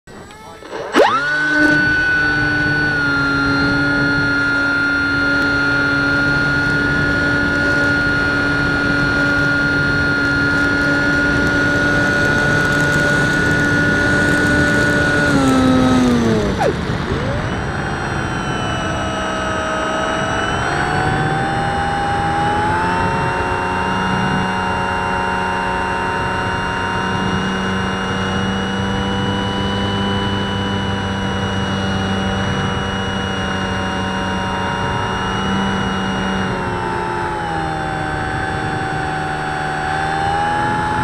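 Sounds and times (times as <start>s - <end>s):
electric motor and propeller whine: 0.1s - 41.0s.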